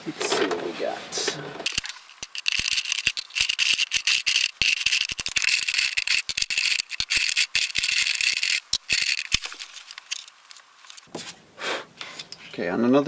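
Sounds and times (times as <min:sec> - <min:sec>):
plastic markers clattering: 0:01.7 - 0:11.1.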